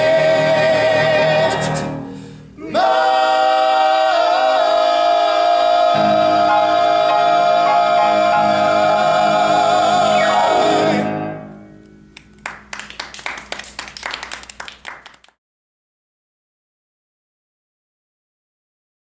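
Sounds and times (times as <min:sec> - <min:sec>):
male harmony group singing: 0:00.0 - 0:02.0, 0:02.6 - 0:11.5
hand clapping: 0:12.1 - 0:15.4.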